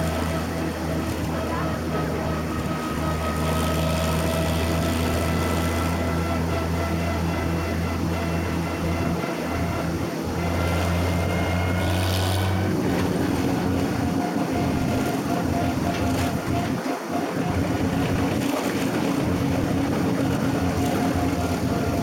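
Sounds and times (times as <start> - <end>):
tractor engine running: 0.0 - 22.0.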